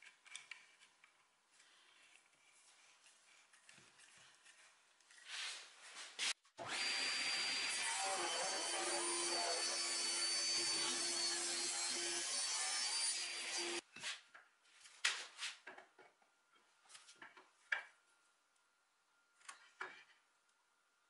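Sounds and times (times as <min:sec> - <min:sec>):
circular saw cutting wood: 0:06.6 - 0:13.8.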